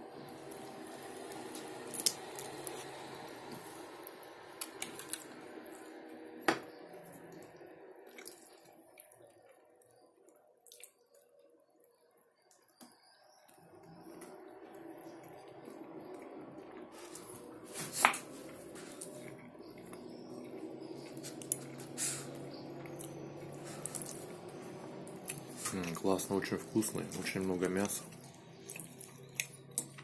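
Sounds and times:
wet chewing and mouth sounds: 0.2 - 6.1, 6.7 - 11.4, 12.5 - 30.0.

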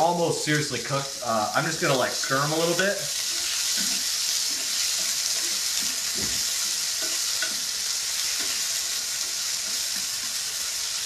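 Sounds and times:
shrimp sizzling in oil: 0.0 - 11.0
spatula knocking and scraping pan: 3.3 - 10.2.

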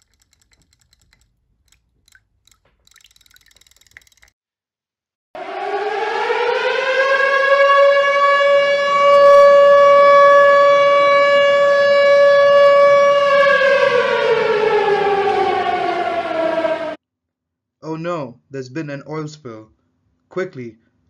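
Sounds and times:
warning siren wailing: 5.4 - 17.0.

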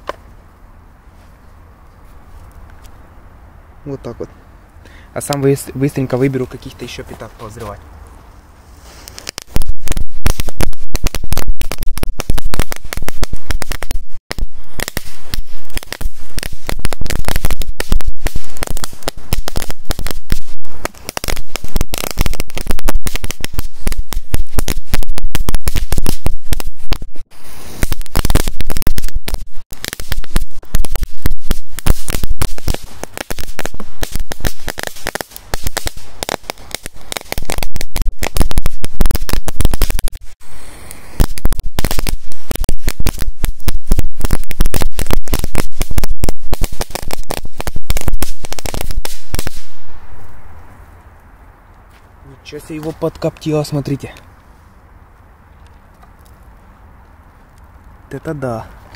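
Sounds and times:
firecrackers going off: 8.8 - 50.7.

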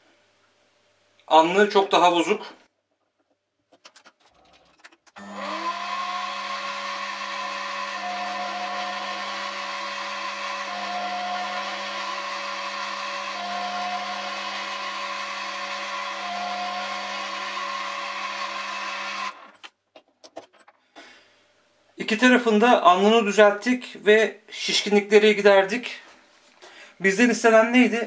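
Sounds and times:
lathe motor whine: 5.2 - 19.6
higher tone: 7.9 - 17.5.

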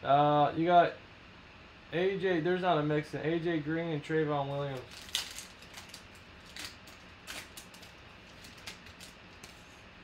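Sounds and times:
foil wrapper crinkling: 4.5 - 9.8
rustling: 4.8 - 9.8.

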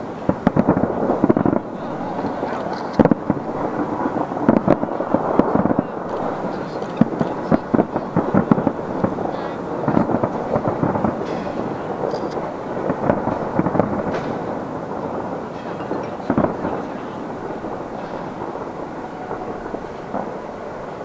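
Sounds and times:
distant fireworks bangs and crackles: 0.0 - 21.0.

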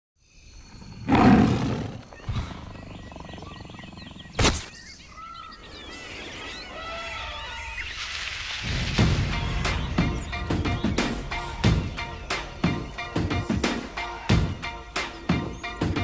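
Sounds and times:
birds chirping: 0.2 - 16.0
big cat roaring: 0.9 - 4.4.

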